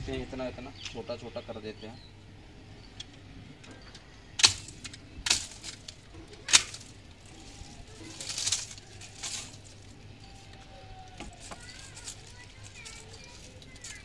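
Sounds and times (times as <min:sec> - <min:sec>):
blades snipping plant stems: 0:04.4 - 0:14.0.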